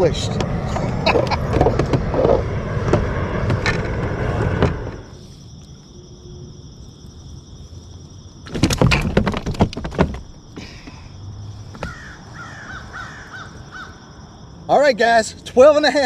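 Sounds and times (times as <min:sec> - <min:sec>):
rapid clattering knocks: 0:08.5 - 0:10.4
rustling and knocking on plastic kayak: 0:08.5 - 0:10.4.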